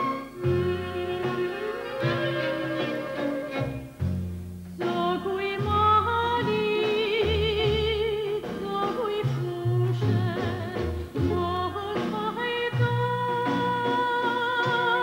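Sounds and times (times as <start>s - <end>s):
instrumental backing with bass: 0.0s - 15.0s
woman singing soprano: 0.4s - 2.2s, 4.8s - 15.0s.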